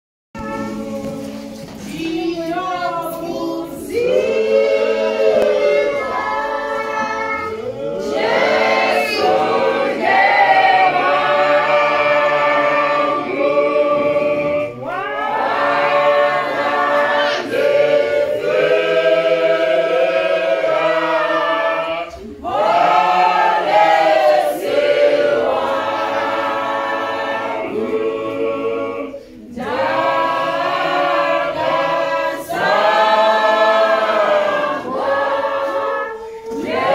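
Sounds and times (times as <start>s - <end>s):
choir singing a cappella hymn: 0.4s - 36.9s.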